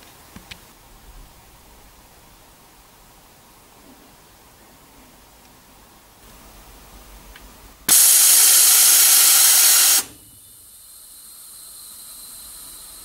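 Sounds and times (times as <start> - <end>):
faint steady hiss: 0.0 - 13.0
loud compressed air hiss: 7.9 - 13.0.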